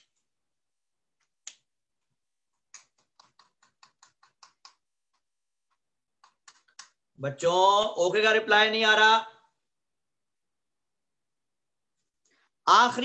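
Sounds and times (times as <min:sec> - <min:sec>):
keyboard typing: 0:02.5 - 0:07.0.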